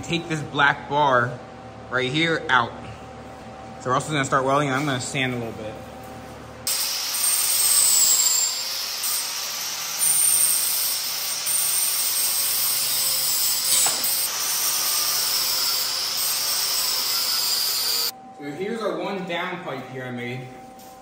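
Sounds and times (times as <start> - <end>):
angle grinder grinding steel: 6.7 - 18.1.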